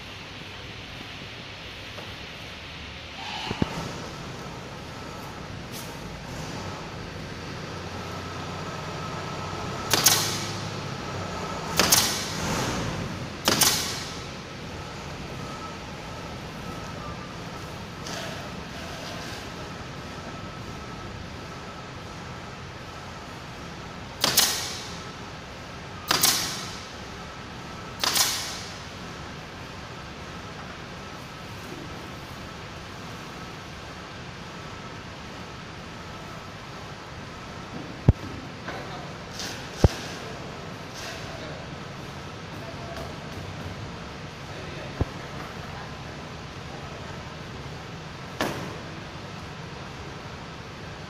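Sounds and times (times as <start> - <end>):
steady low hum: 0.0 - 51.0
nail gun firing with air hiss: 9.9 - 10.8, 11.7 - 14.3, 24.2 - 25.0, 26.1 - 27.0, 28.0 - 28.9, 39.3 - 40.2.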